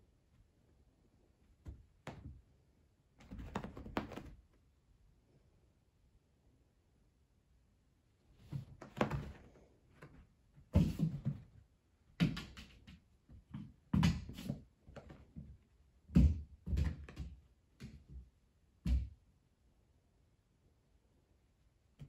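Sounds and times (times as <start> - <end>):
cats thumping and scuffling: 3.2 - 4.4, 8.4 - 11.6.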